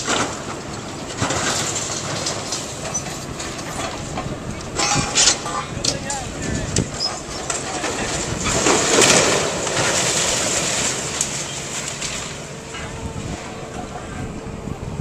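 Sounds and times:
excavator engine running: 0.0s - 15.0s
brick masonry crashing down: 4.7s - 11.6s.

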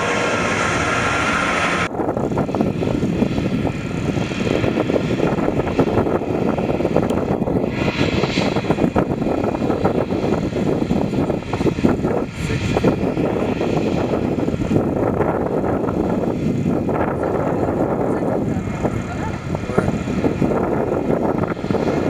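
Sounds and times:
jet engines idling roar: 0.0s - 22.0s.

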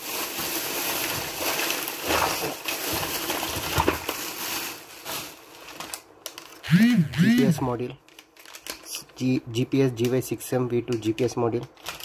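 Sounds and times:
plastic bag rustling: 0.0s - 6.6s, 7.6s - 9.3s.

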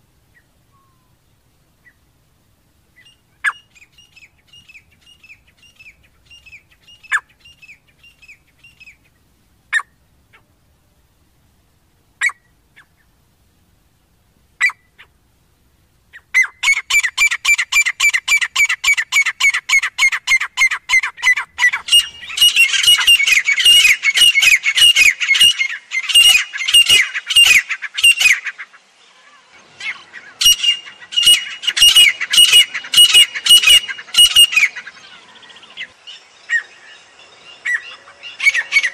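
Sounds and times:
francolins calling: 2.8s - 10.6s, 14.6s - 15.2s, 16.1s - 38.9s.

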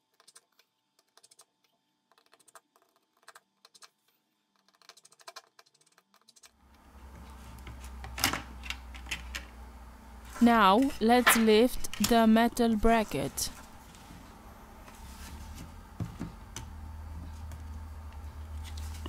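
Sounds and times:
low steady hum: 6.6s - 19.0s.

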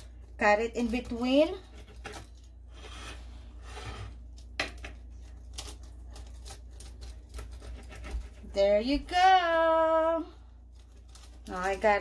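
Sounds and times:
pizza cutter scraping: 2.7s - 4.3s, 5.4s - 8.9s.

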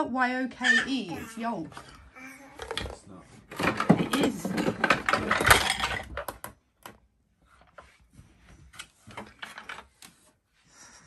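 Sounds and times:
toy cups and pots clattering: 2.6s - 6.6s.

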